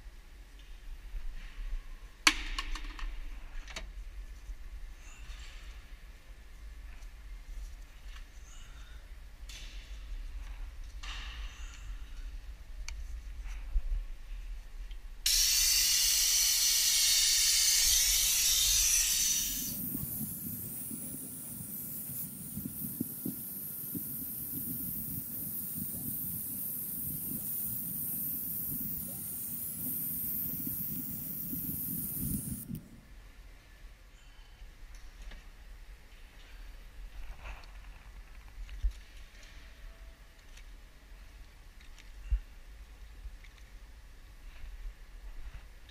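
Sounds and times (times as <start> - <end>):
fluid extractor hissing: 15.3 - 32.6.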